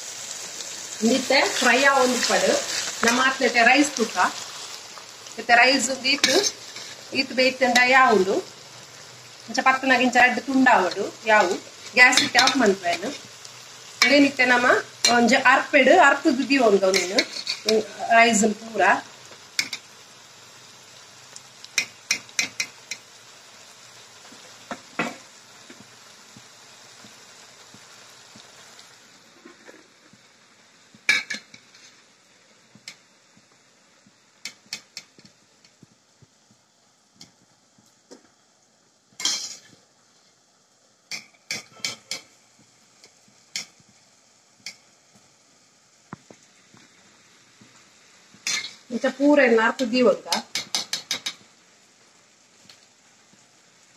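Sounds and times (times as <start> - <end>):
frying sizzle: 0.0 - 53.9
metal spoon scraping a pan: 1.1 - 4.5, 5.8 - 7.9, 10.9 - 13.3, 16.9 - 18.0, 29.3 - 29.9, 31.1 - 32.0, 39.2 - 39.7, 41.1 - 42.3, 48.4 - 48.9, 50.3 - 51.4.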